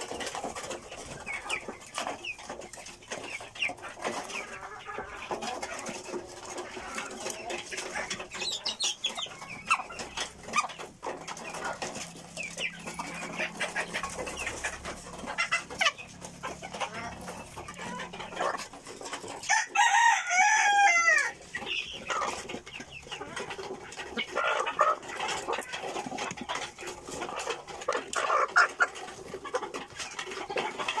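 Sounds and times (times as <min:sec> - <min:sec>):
chickens clucking: 0:00.0 - 0:31.0
rooster crowing: 0:19.5 - 0:21.4.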